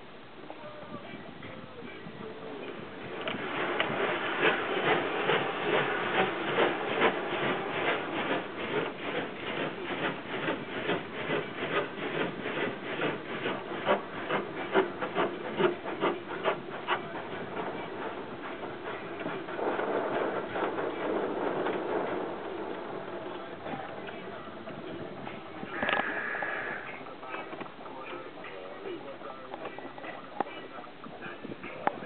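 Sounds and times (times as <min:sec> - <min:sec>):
car wash brushes slapping: 0:02.8 - 0:25.6.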